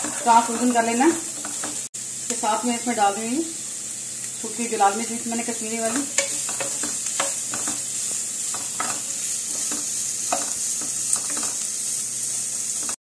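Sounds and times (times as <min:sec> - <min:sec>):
wooden spatula scraping pan: 0:00.0 - 0:01.9, 0:05.8 - 0:11.6
onions sizzling in hot fat: 0:00.0 - 0:13.0.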